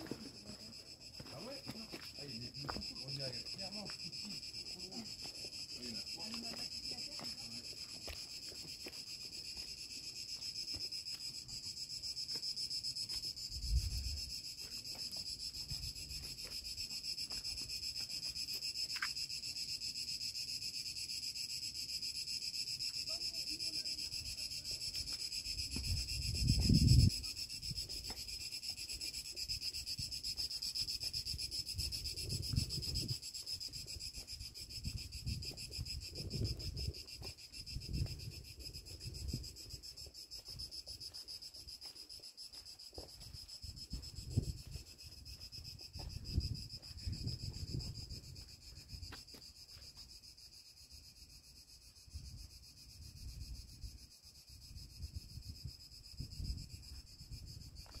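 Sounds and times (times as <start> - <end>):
shrill insect chorus: 0.0 - 58.0
wind on microphone: 13.5 - 14.3, 25.6 - 28.1, 31.4 - 39.8, 43.6 - 49.1, 54.6 - 58.0.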